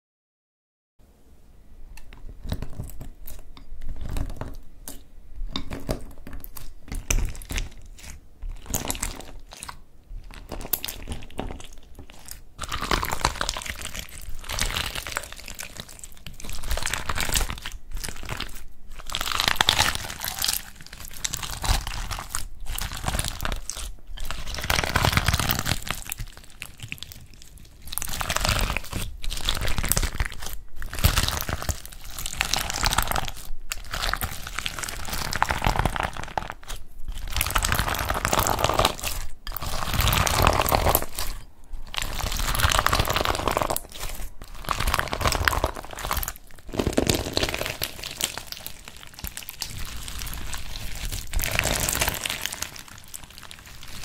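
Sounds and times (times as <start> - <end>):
slime crackling squishes: 2.1 - 54.0.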